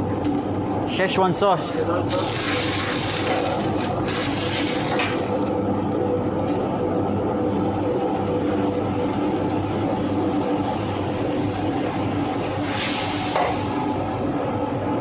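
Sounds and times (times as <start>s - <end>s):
gas wok burner roaring: 0.0s - 15.0s.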